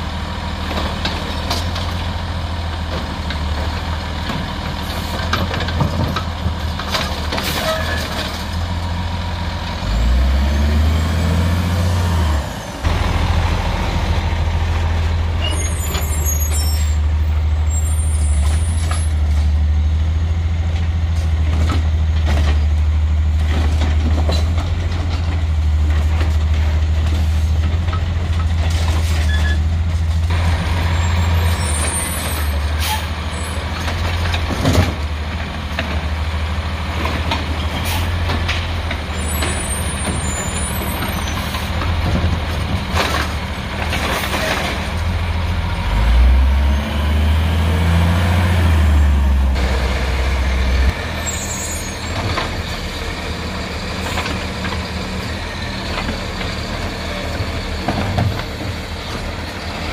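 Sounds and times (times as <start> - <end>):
diesel truck engine running: 0.0 - 7.5, 8.2 - 59.9
air brakes hissing: 37.8 - 38.2.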